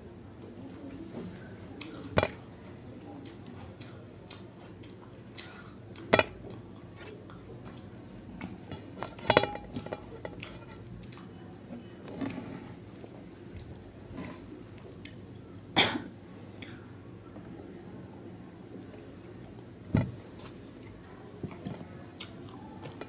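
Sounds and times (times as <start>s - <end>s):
hand clinking on metal plate: 9.0s - 10.6s.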